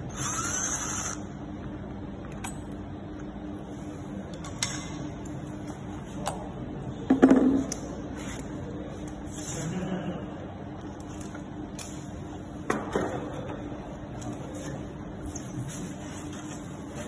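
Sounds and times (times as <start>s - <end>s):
cordless drill driving screw: 0.1s - 1.2s.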